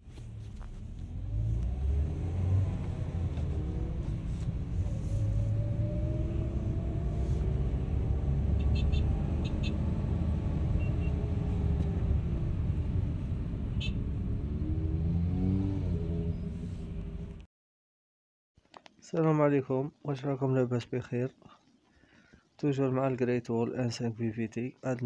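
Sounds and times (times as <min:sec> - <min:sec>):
whine rising and falling in pitch: 0:01.3 - 0:16.6.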